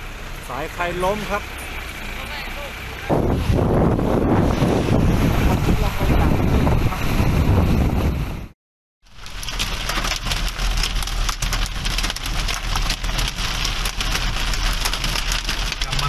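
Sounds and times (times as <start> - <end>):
wind buffeting microphone: 3.1 - 8.6
hail and rain on car roof: 9.1 - 16.0.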